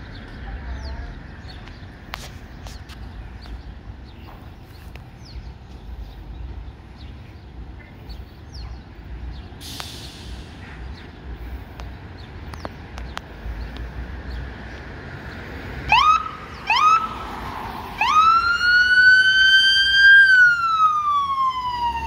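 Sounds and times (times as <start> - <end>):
birds chirping: 0.0 - 22.0
short hiss: 9.6 - 10.6.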